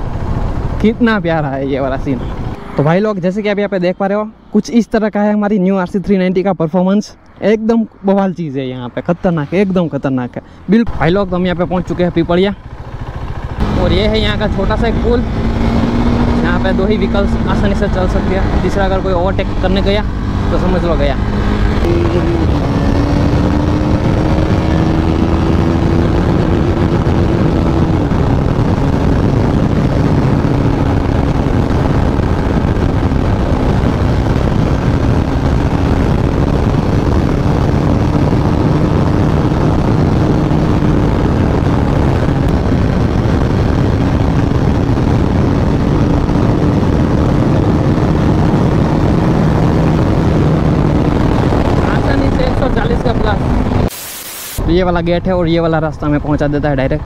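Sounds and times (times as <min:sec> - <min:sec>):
low wind rush: 0:00.0 - 0:57.0
motorcycle engine running: 0:11.2 - 0:53.9.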